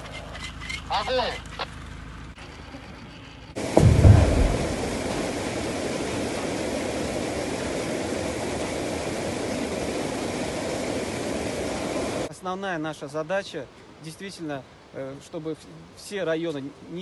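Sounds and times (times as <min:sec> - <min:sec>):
deep explosion boom: 0:03.6 - 0:07.1
steady rushing noise: 0:03.6 - 0:12.3.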